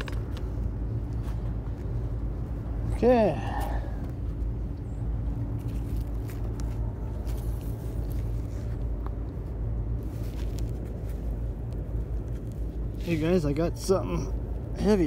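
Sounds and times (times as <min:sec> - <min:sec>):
rope clicks and rustles: 0:00.0 - 0:02.6, 0:04.0 - 0:13.4
low outdoor rumble: 0:00.0 - 0:15.0.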